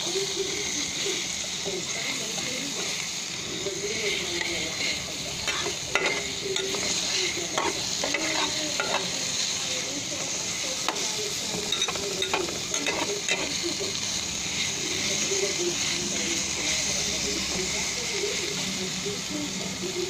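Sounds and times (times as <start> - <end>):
onion sizzling in oil: 0.0 - 20.0
metal spatula scraping pan: 4.2 - 9.2, 10.9 - 13.6.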